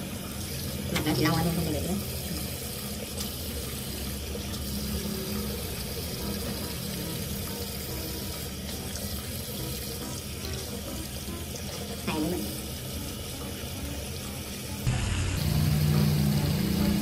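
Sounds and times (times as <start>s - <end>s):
faucet running into sink: 0.0s - 17.0s.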